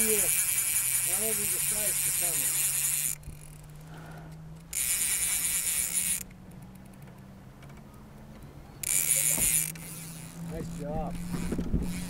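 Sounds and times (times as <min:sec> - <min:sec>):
fishing reel drag buzzing: 0:00.0 - 0:07.0, 0:08.8 - 0:12.0.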